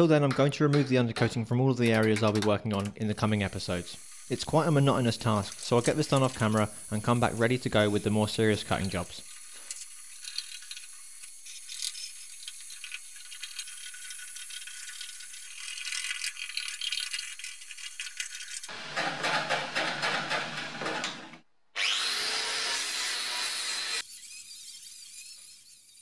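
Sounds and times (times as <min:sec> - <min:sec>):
heat gun blowing: 0:03.2 - 0:12.2
angle grinder whine: 0:18.7 - 0:26.0.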